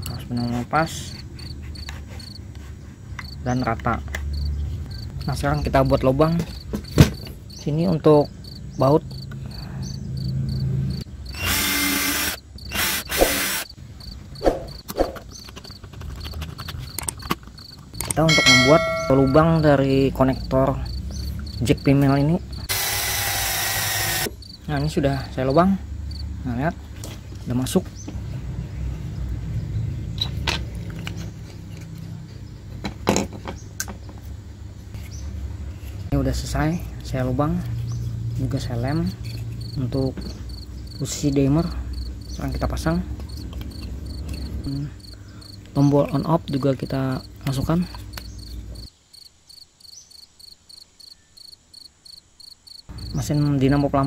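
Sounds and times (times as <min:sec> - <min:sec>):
cordless drill boring wood: 0:11.3 - 0:13.7, 0:22.7 - 0:24.3
clicks and knocks of handled parts: 0:15.2 - 0:19.7, 0:30.2 - 0:32.1.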